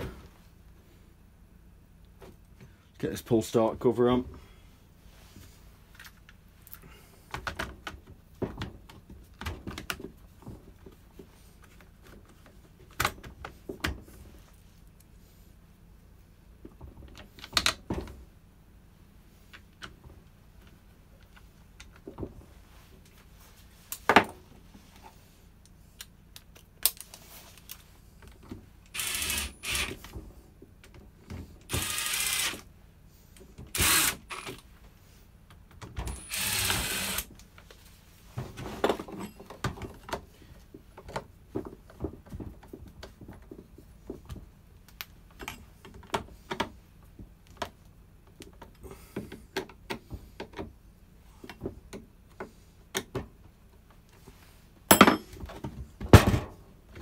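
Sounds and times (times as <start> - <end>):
power drill driving screws: 28.9 - 30.0, 31.7 - 32.7, 33.7 - 34.6, 36.1 - 37.3.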